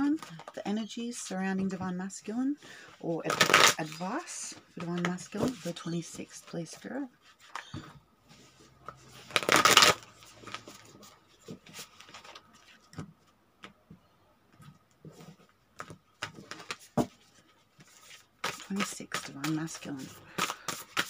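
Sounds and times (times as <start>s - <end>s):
cards being shuffled: 3.2s - 4.2s, 8.9s - 13.0s, 15.3s - 21.0s
cards tapping and sliding: 17.8s - 21.0s.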